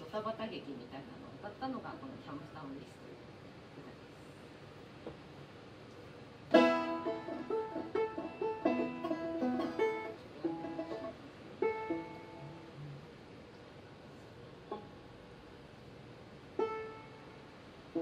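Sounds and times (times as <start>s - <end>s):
banjo strummed chord: 6.5s - 12.7s
banjo picked notes: 6.5s - 13.0s, 16.6s - 18.0s.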